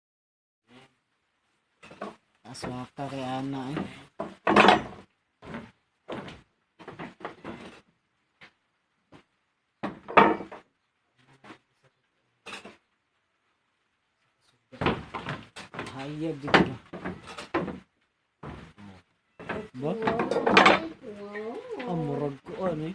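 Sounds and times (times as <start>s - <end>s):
short knocks and thumps: 3.6s - 7.8s, 8.4s - 10.6s, 14.8s - 18.8s, 19.4s - 21.0s.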